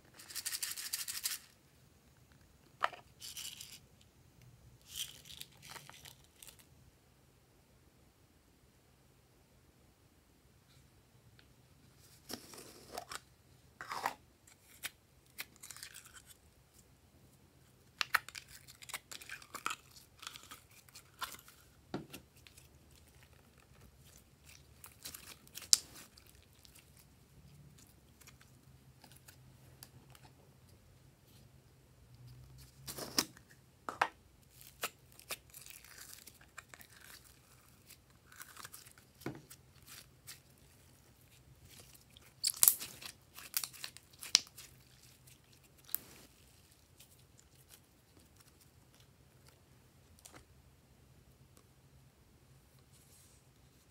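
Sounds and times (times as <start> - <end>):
slime crackling and popping: 41.7 - 46.0.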